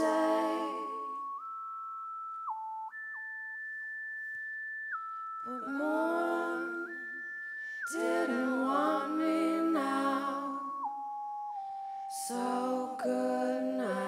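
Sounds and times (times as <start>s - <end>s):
whistle-like synthesizer tone: 0.0s - 14.0s
woman singing long notes: 5.5s - 7.2s, 12.1s - 14.0s.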